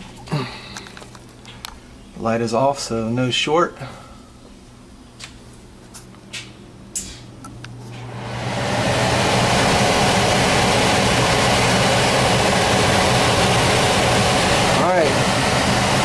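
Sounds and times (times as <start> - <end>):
blower motor rushing and humming: 7.7 - 16.0.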